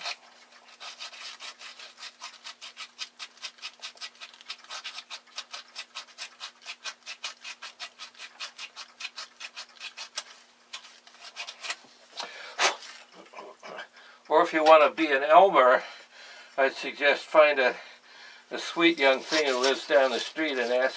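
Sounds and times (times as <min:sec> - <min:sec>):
emery cloth rubbing metal tube: 0:18.6 - 0:20.9.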